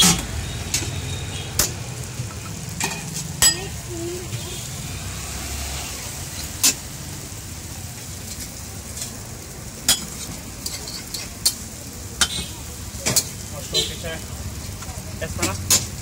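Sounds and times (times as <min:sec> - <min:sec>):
food sizzling on griddle: 0:00.0 - 0:16.0
metal utensil clinking: 0:02.4 - 0:03.8, 0:09.8 - 0:11.6.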